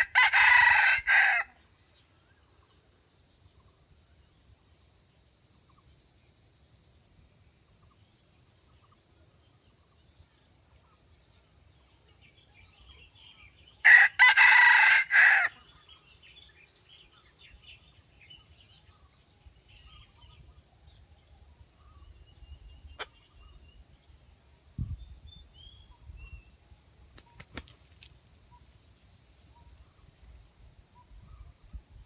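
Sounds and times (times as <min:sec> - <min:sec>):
rooster crowing: 0:00.0 - 0:01.5, 0:13.8 - 0:15.6.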